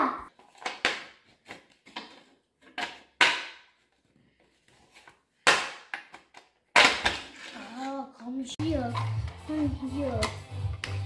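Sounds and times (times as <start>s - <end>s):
plastic pieces clacking together: 0.3s - 3.8s, 5.4s - 7.9s.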